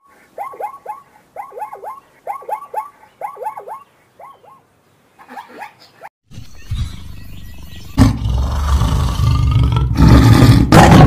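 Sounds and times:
zebra barking: 0.2s - 4.6s.

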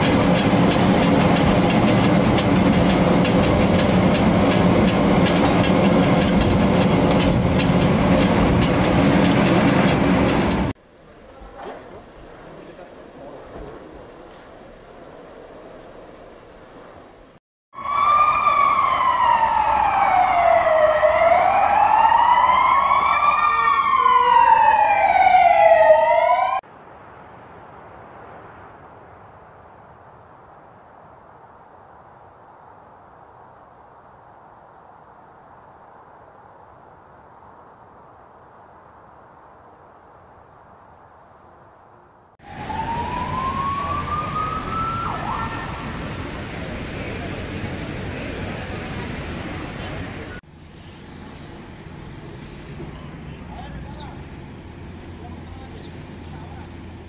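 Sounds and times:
city traffic noise: 0.0s - 11.4s, 42.4s - 57.0s
emergency siren wailing: 17.8s - 26.6s, 42.4s - 47.3s
second siren tone: 17.8s - 26.6s, 42.4s - 46.0s.

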